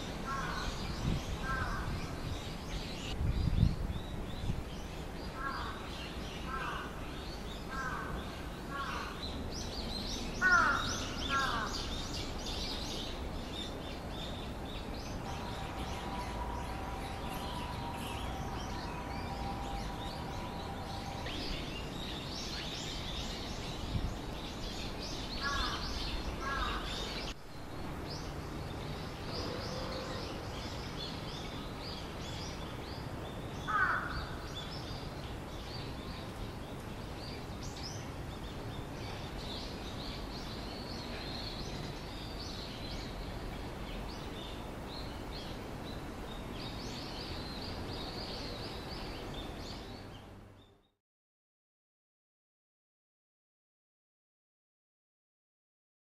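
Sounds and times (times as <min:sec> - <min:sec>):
crows cawing: 0:00.3 - 0:00.7, 0:06.5 - 0:06.9, 0:07.7 - 0:09.2, 0:10.4 - 0:11.7, 0:25.4 - 0:25.8, 0:26.4 - 0:26.8, 0:33.7 - 0:34.4.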